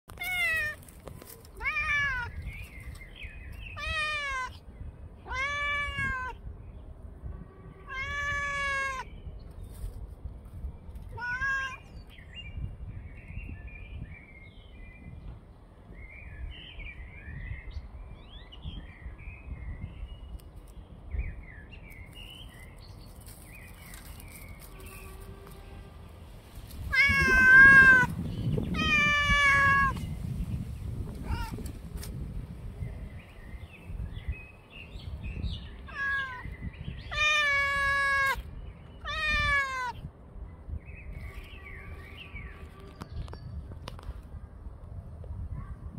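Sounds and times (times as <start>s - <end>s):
cat meowing loudly: 0.1s - 0.8s, 1.6s - 2.4s, 3.8s - 4.6s, 5.2s - 6.4s, 7.8s - 9.1s, 11.1s - 11.9s, 26.8s - 30.0s, 31.1s - 31.7s, 35.9s - 36.5s, 37.1s - 40.0s.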